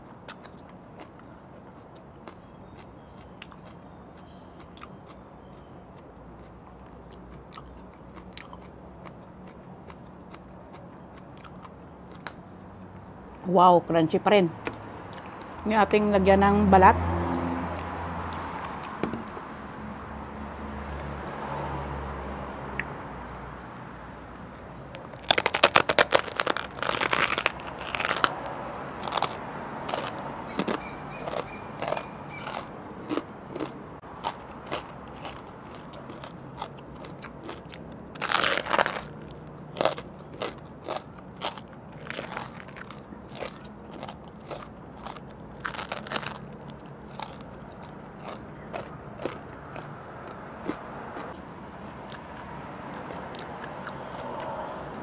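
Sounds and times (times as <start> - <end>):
crispy pork skin crunching: 24.5 - 54.5.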